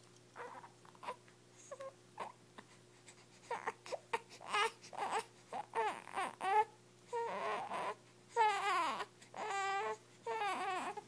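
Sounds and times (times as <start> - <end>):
infant crying: 3.5 - 11.0.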